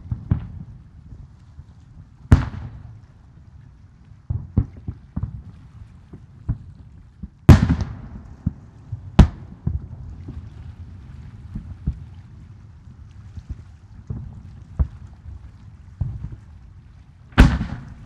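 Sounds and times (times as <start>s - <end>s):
firework booms: 7.5s - 9.9s, 17.4s - 18.0s
firework pops and cracks: 17.4s - 18.0s
low rumble: 17.4s - 18.0s.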